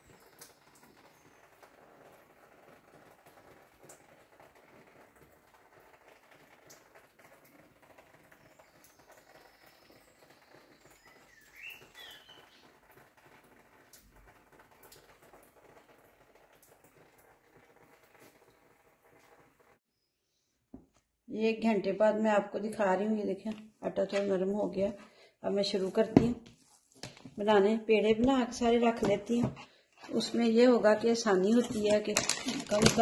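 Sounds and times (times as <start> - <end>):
bird chirp: 8.3 - 12.7.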